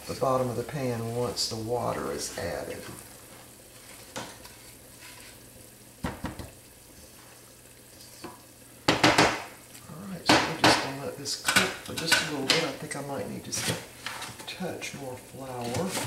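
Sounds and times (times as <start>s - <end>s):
faint sizzle: 0.0s - 16.0s
spatula scraping skillet: 2.0s - 5.6s, 13.4s - 14.6s, 15.4s - 16.0s.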